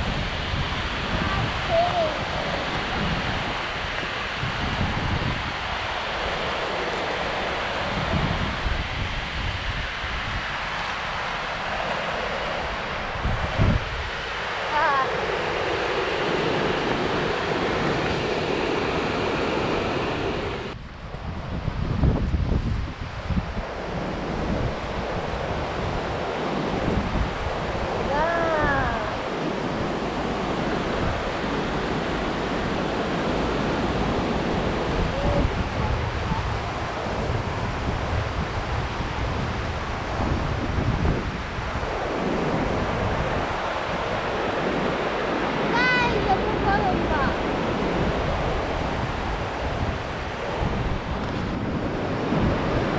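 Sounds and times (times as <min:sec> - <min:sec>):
waterfall rushing: 0:00.0 - 0:04.6, 0:27.5 - 0:37.7, 0:43.4 - 0:48.3
wind buffeting microphone: 0:00.0 - 0:52.9
river rapids and waterfalls rushing: 0:00.1 - 0:20.8, 0:23.7 - 0:37.7, 0:41.4 - 0:49.5.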